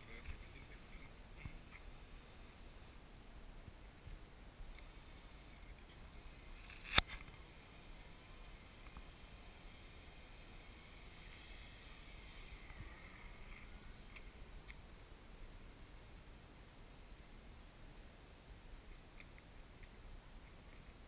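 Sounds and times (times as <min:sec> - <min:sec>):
sharp click: 0:06.6 - 0:07.3
electric model plane motor whining: 0:07.4 - 0:14.4.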